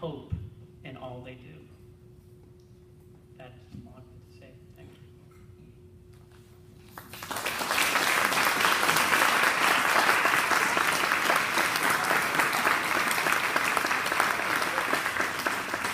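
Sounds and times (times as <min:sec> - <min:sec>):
audience applauding: 0:07.0 - 0:15.9.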